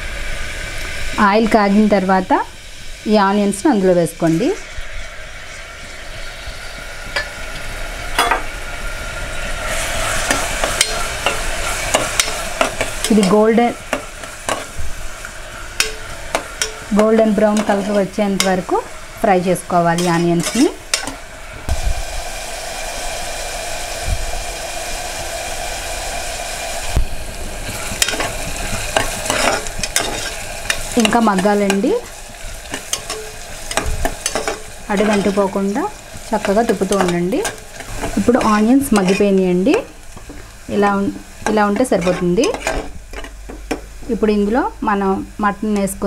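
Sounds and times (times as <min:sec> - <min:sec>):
onions sizzling in hot oil: 0:00.0 - 0:46.0
metal spoon scraping and knocking pot: 0:10.2 - 0:14.8, 0:15.8 - 0:18.6, 0:28.0 - 0:28.3, 0:28.9 - 0:31.9, 0:32.7 - 0:35.4, 0:36.4 - 0:40.4
metal spoon scraping a pot: 0:20.0 - 0:21.2, 0:28.9 - 0:31.8, 0:36.4 - 0:39.4.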